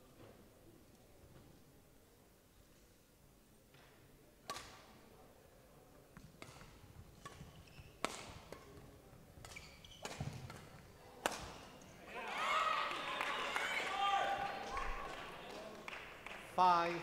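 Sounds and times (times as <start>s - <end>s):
racket hitting shuttlecock: 4.4s - 4.9s, 6.4s - 11.7s.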